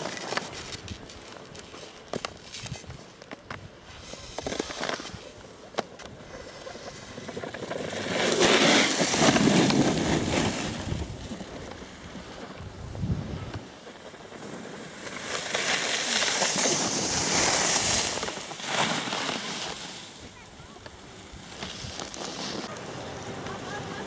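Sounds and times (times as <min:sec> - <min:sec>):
ski edges scraping and clicking: 0:00.0 - 0:24.0
skis sliding over snow: 0:00.0 - 0:24.0
long scraping skid on snow: 0:06.2 - 0:24.0.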